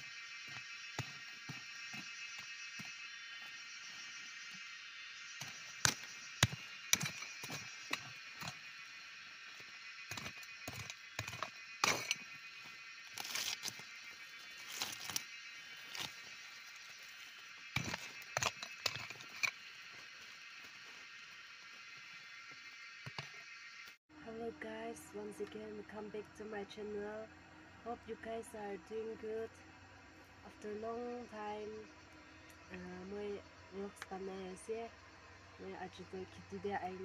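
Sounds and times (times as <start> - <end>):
plant stalks rustling and snapping: 13.1 - 19.5.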